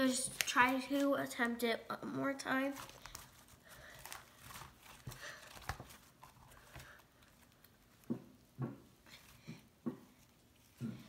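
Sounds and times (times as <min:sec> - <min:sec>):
slime crackling: 0:02.4 - 0:08.1.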